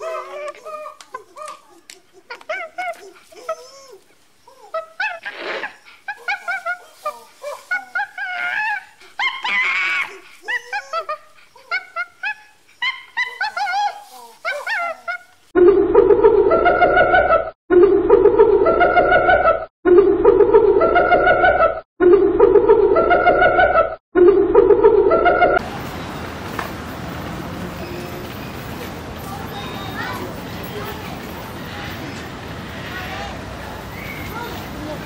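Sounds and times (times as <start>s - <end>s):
hyena calling: 0.0s - 15.4s
macaque calls: 0.0s - 15.4s.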